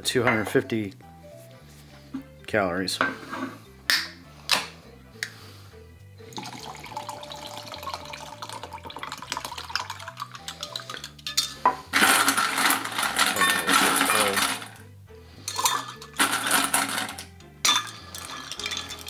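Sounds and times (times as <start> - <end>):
juice pouring into jug: 6.3 - 11.0.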